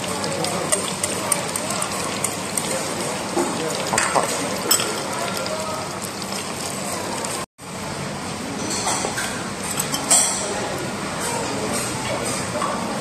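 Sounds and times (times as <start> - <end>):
faint chatter: 0.0 - 7.5, 9.9 - 13.0
oil sizzling in deep fryer: 0.0 - 13.0
tableware clinking: 3.9 - 5.5, 8.6 - 10.6.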